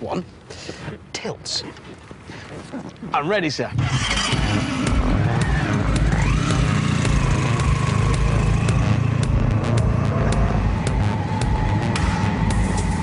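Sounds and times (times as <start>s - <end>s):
motorcycle engine pulling away: 3.8s - 13.0s.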